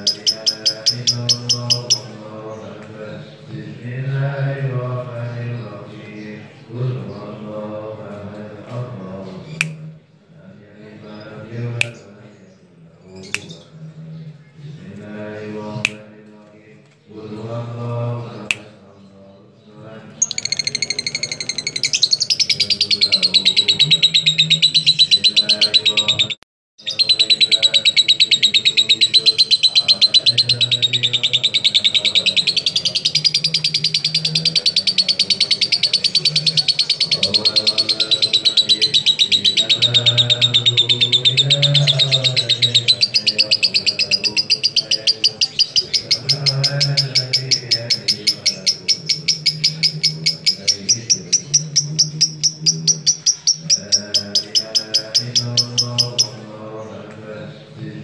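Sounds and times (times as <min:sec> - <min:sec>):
lovebird shrill rapid chattering: 0:00.0 - 0:02.0, 0:20.2 - 0:56.2.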